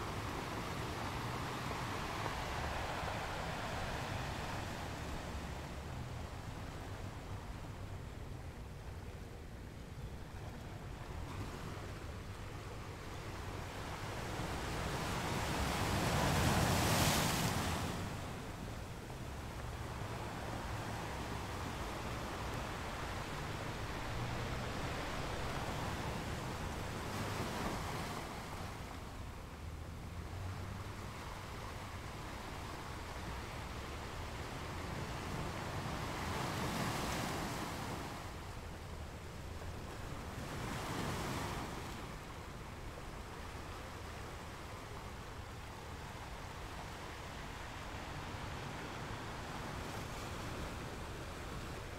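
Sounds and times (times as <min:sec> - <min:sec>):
sea surf breaking: 0:00.0 - 0:05.7.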